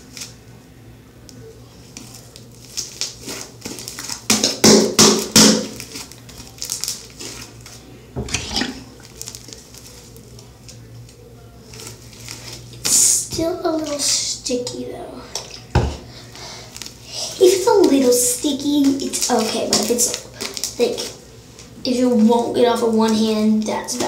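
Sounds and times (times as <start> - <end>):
slime squelching and crackling: 1.7 - 14.4, 15.3 - 24.0.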